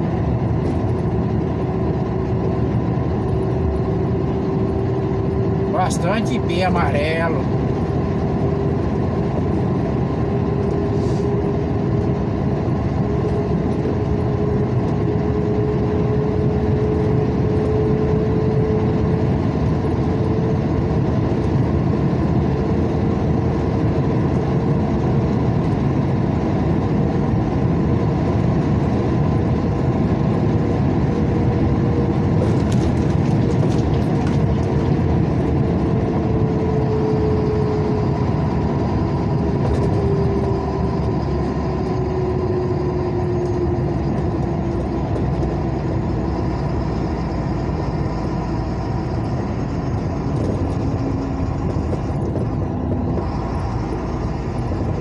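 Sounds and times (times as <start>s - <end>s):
vehicle engine and tyre noise: 0.0s - 55.0s.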